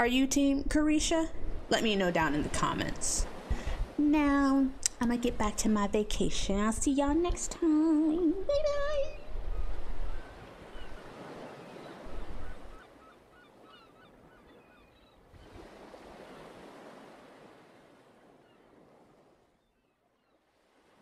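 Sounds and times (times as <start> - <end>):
ocean surf on a beach: 1.2 - 6.0, 8.0 - 13.6, 15.4 - 19.4
short bird calls: 10.1 - 15.6.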